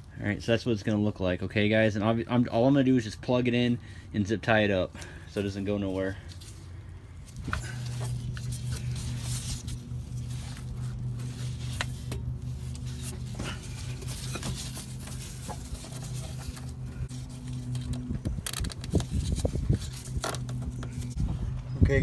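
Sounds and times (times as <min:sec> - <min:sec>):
steady low hum: 0:00.0 - 0:22.0
zip tie ratcheting: 0:17.5 - 0:21.1.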